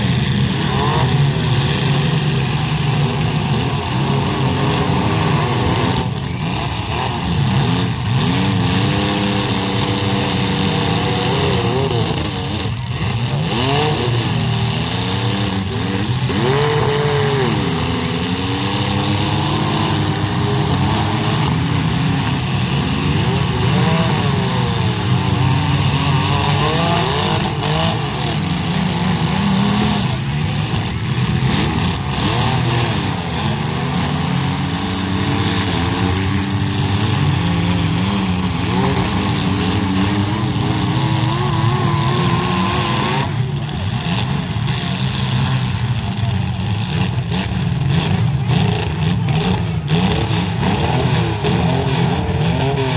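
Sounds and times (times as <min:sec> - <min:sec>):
car engines revving: 0:00.0 - 0:52.9.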